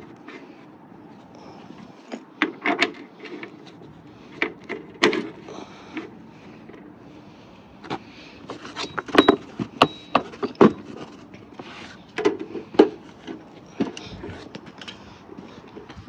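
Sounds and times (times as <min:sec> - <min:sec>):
high ringing tone: 0:08.8 - 0:10.9.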